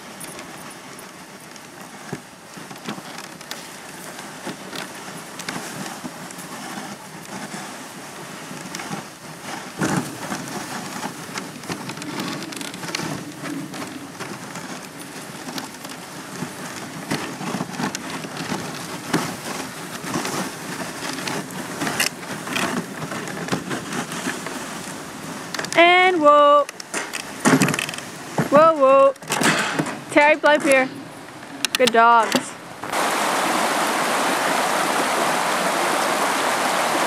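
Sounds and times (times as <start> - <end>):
sled runners hissing on snow: 0.0 - 25.5, 32.9 - 37.0
snow crunching: 0.0 - 29.1, 32.8 - 37.0.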